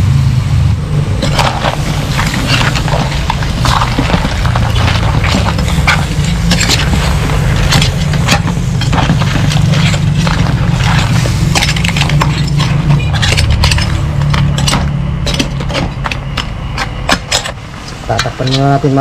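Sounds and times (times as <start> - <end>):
low rumble: 0.0 - 19.0
spatula scraping metal wok: 1.2 - 15.9.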